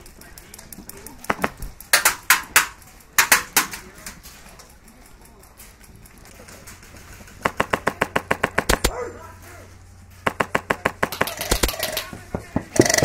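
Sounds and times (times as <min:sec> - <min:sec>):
airsoft gun rapid fire: 0:00.0 - 0:04.1, 0:06.4 - 0:09.0, 0:10.2 - 0:13.0.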